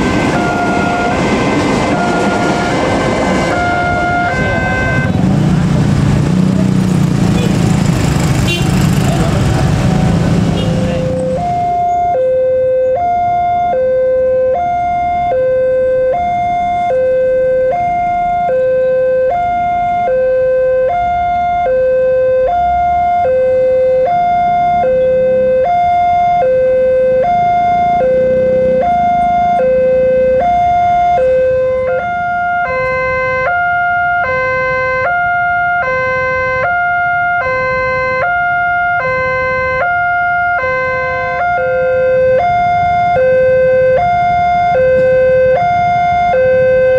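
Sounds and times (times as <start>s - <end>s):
level crossing alarm tone: 0.0s - 5.2s, 10.6s - 46.9s
second alarm tone: 10.6s - 33.4s.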